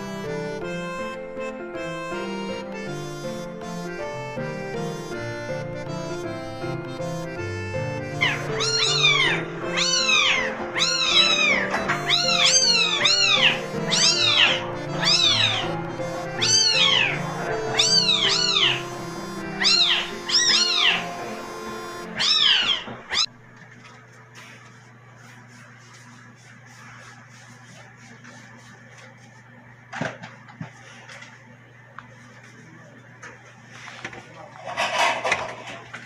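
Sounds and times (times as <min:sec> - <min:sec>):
background music: 0:00.0 - 0:22.6
kittens mewing: 0:08.2 - 0:23.3.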